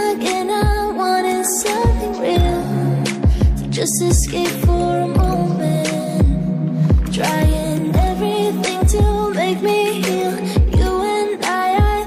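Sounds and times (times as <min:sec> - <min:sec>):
electronic pop music: 0:00.0 - 0:12.0.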